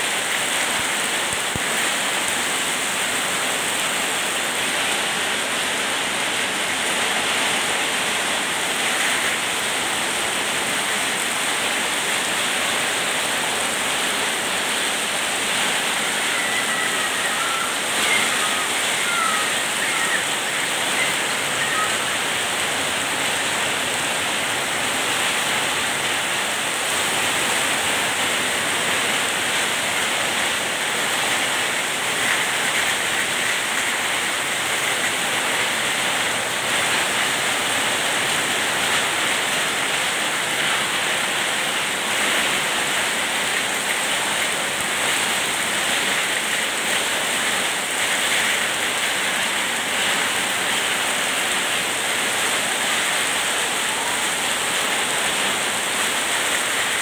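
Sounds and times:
heavy rain hissing: 0:00.0 - 0:57.0
water streaming off roof: 0:00.0 - 0:57.0.

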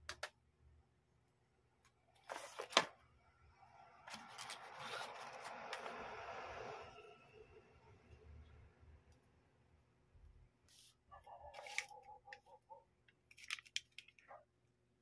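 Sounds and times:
cardboard packaging rustling: 0:04.1 - 0:05.9, 0:11.5 - 0:12.0, 0:13.3 - 0:14.2.

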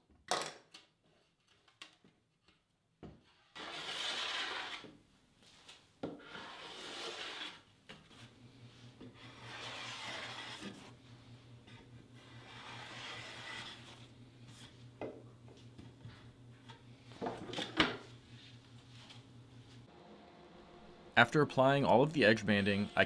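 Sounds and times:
plane scraping along wood: 0:03.6 - 0:04.9, 0:06.2 - 0:07.6, 0:09.0 - 0:11.0, 0:11.7 - 0:14.1.

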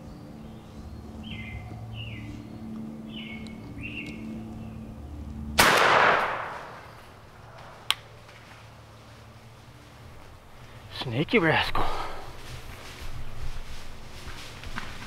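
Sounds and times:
birds chirping: 0:00.0 - 0:05.5, 0:06.3 - 0:14.0
shotgun blast echoing: 0:05.6 - 0:06.8.

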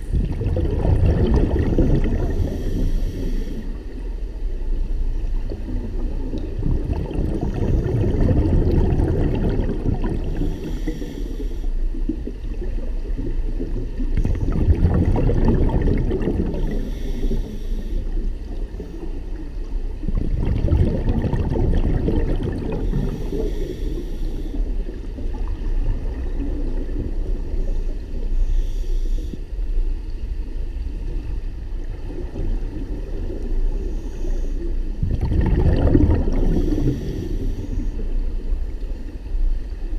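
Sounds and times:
exhaled bubbles rumbling: 0:00.0 - 0:39.9
regulator inhalation hiss: 0:02.2 - 0:04.0, 0:10.2 - 0:11.9, 0:16.5 - 0:18.3, 0:22.8 - 0:24.9, 0:27.7 - 0:29.6, 0:36.4 - 0:38.2.

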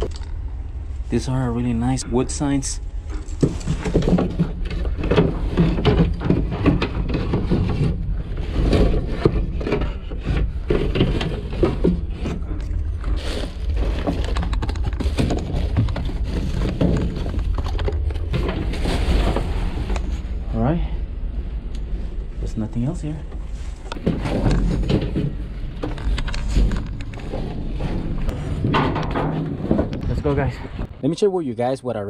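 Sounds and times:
steady low rumble: 0:00.0 - 0:32.0
cardboard and wood clattering: 0:03.2 - 0:20.2, 0:23.6 - 0:30.3.

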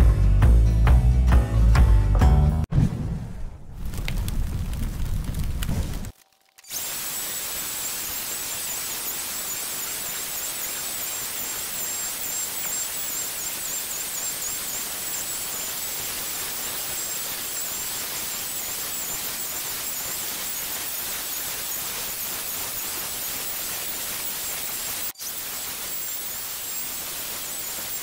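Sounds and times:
hiss of cutting wood: 0:06.6 - 0:28.0
router motor whine: 0:06.6 - 0:28.0.

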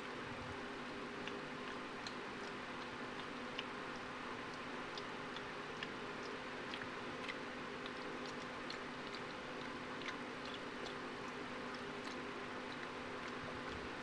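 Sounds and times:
monkey chewing and lip smacking: 0:00.6 - 0:14.0.

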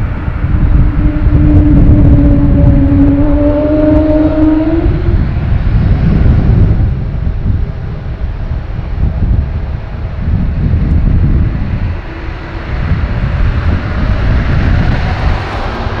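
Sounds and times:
moaning tone of jet engines: 0:00.0 - 0:16.0
jet engines spooling up: 0:11.0 - 0:16.0.

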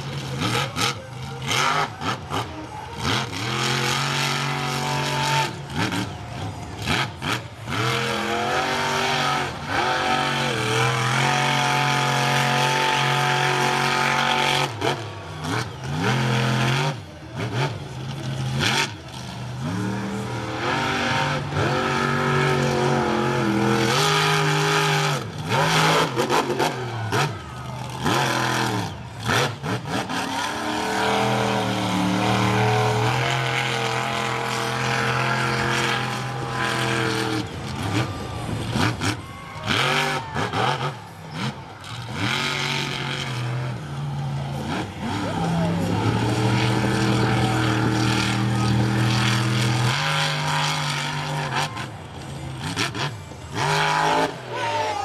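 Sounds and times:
truck engine revving: 0:00.0 - 0:55.0.

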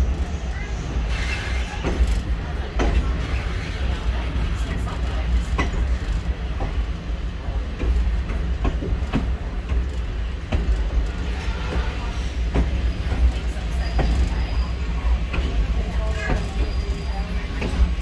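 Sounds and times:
train rumbling: 0:00.0 - 0:18.0
wheels clicking on rails: 0:00.0 - 0:18.0.

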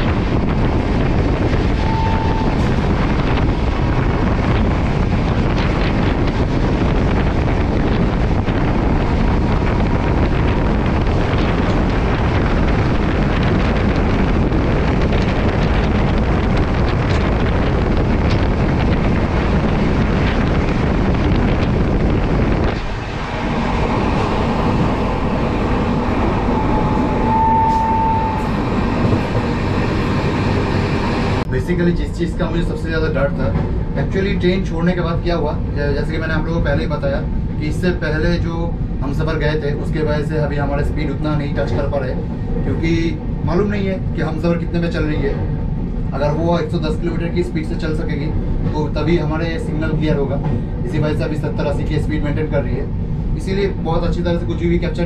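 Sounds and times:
moving train rumble: 0:00.0 - 0:55.0
wind on microphone: 0:00.0 - 0:55.0
short high tone: 0:01.8 - 0:02.6.

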